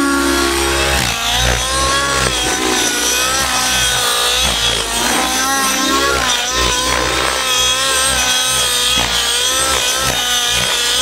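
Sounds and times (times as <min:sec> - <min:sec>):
model helicopter engine wavering: 0:00.0 - 0:11.0.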